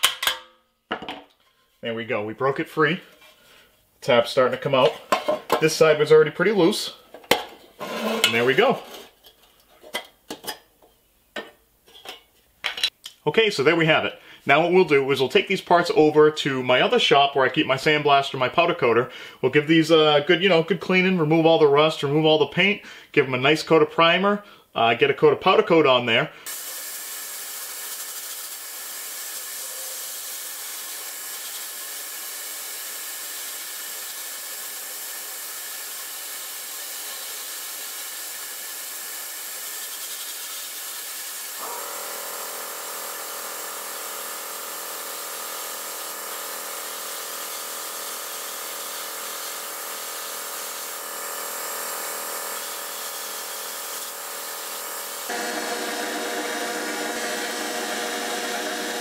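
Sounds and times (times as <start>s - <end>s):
powder coating gun hissing: 26.4s - 55.4s
sandblast nozzle hissing: 26.4s - 59.0s.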